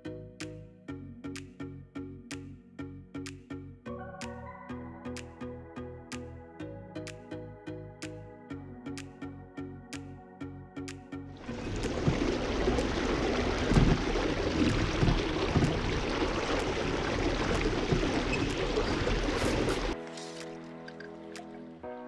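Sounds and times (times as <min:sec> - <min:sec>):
river water rushing: 0:11.4 - 0:20.0
low thumps: 0:11.5 - 0:20.0.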